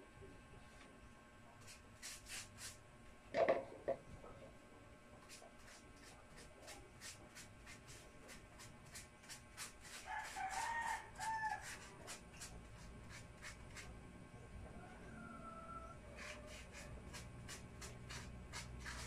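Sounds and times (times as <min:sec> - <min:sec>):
paintbrush scrubbing on wood: 0:01.6 - 0:02.8, 0:05.2 - 0:13.9, 0:16.2 - 0:19.0.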